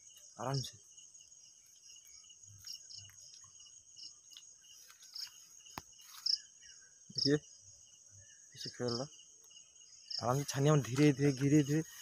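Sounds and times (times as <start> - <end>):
crickets and insects trilling: 0.0 - 12.0.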